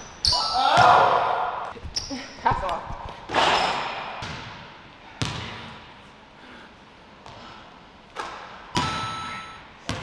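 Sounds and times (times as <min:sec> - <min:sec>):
basketball banging backboard: 0:05.2 - 0:05.5
basketball bouncing on hardwood: 0:05.2 - 0:05.5.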